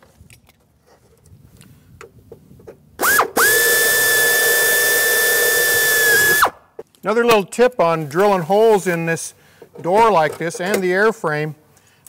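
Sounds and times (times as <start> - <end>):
pneumatic drill whining: 3.0 - 6.6.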